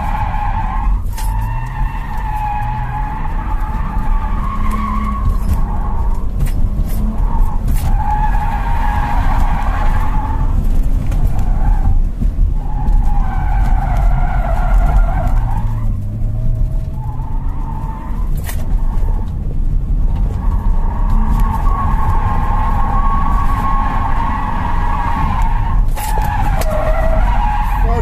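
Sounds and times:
car engine rumbling: 0.0 - 28.0
tyres squealing: 20.5 - 28.0.

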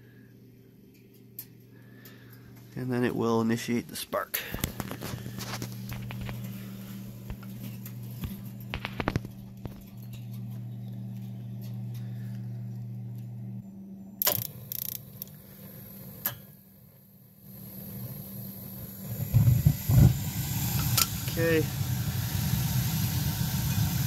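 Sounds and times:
boiler humming: 0.0 - 24.0
gas burners igniting with low rush: 0.0 - 24.0
ignition spark clicks: 14.2 - 15.4.

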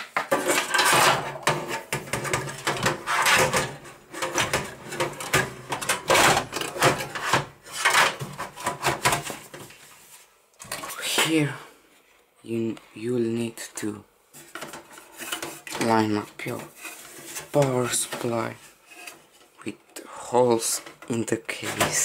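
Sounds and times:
scrapes and knocks of computer parts: 0.0 - 11.0, 14.3 - 19.6, 20.8 - 22.0.

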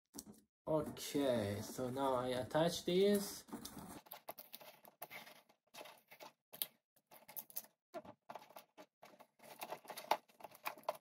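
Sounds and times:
packing tape crackling: 8.3 - 11.0.

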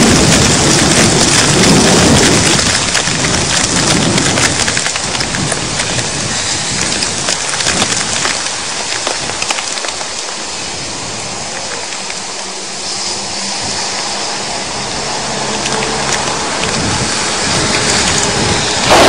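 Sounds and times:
hailstone ticks: 0.0 - 10.5, 14.8 - 19.0
thunder rumble: 0.0 - 12.2, 12.8 - 19.0
heavy rain hissing: 0.0 - 19.0.

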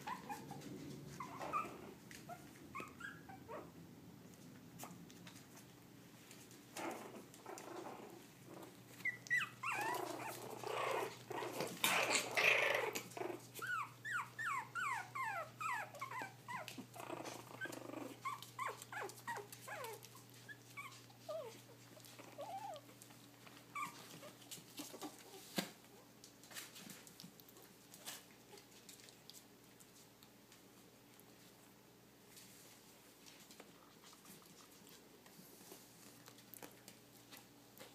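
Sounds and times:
puppy yips: 0.0 - 0.6, 1.2 - 3.8, 9.0 - 11.1
puppies growling and squealing: 0.0 - 3.8, 6.7 - 25.5.

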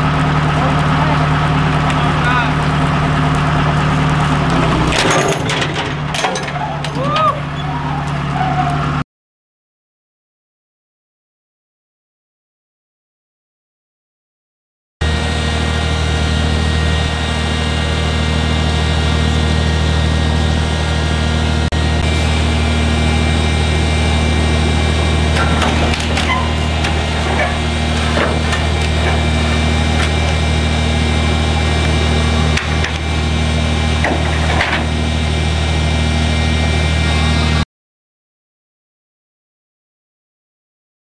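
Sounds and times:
crane engine humming: 0.0 - 5.0, 5.9 - 9.0, 15.0 - 37.6
metal knocks and clanks: 4.8 - 7.1, 25.3 - 30.4, 34.0 - 35.0.

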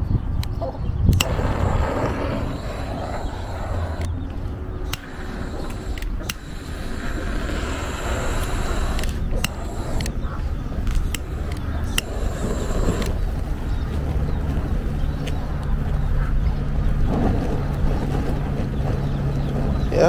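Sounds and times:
wind rumbling on microphone: 0.0 - 20.0
sharp clicks: 0.4 - 13.9
torch flame hissing: 1.1 - 14.9.

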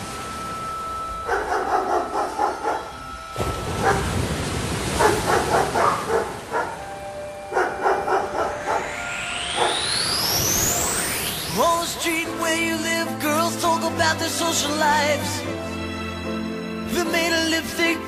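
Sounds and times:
dog barking: 1.3 - 2.9, 3.8 - 4.1, 5.0 - 6.8, 7.5 - 8.8.

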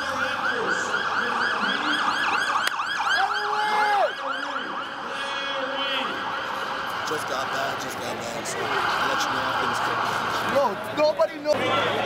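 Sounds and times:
siren fast yelp: 0.0 - 7.0.

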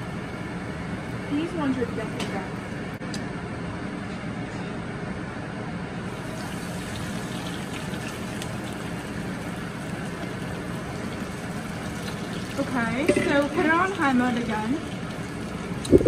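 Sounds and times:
fries sizzling in hot oil: 6.1 - 15.9.

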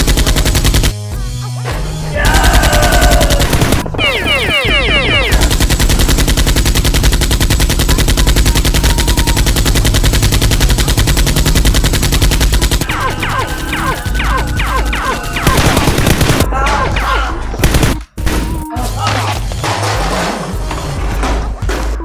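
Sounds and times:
rapid automatic gunfire: 0.0 - 1.1, 2.3 - 16.5, 17.6 - 18.0.

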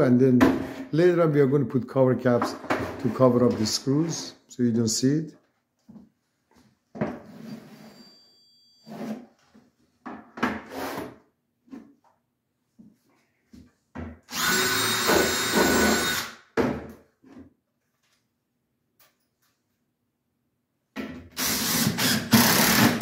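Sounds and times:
cordless drill driving screw: 14.3 - 16.4, 21.4 - 23.0.

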